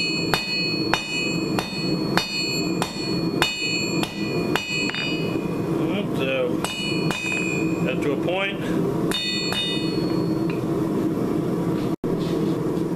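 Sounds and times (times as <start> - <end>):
hammer striking metal on anvil: 0.0 - 5.6, 6.6 - 7.9, 9.1 - 10.6.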